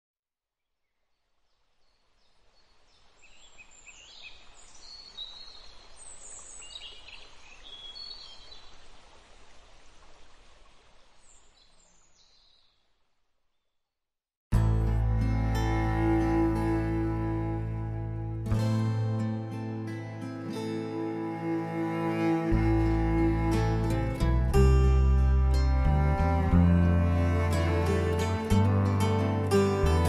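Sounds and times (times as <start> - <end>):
small birds chirping: 0.6 - 9.2, 9.8 - 13.8
music: 14.5 - 30.0.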